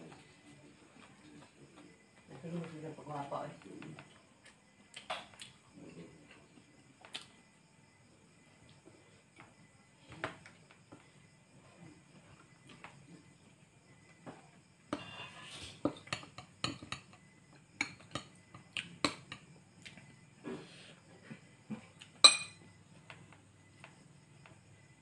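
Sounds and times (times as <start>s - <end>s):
spoon clinking on plates: 15.9s - 17.2s, 17.8s - 18.3s, 22.2s - 22.6s
loud ringing clink: 22.3s - 22.6s.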